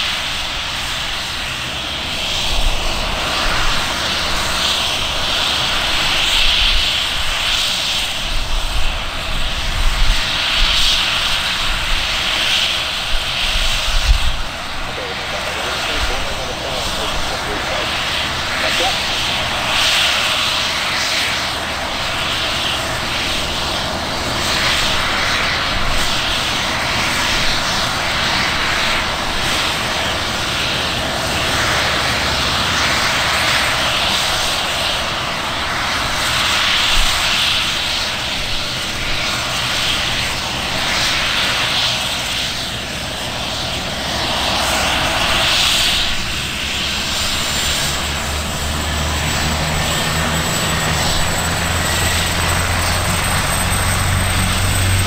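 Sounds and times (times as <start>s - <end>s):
helicopter engines and rotors: 0.0s - 55.0s
low hum: 13.9s - 20.8s.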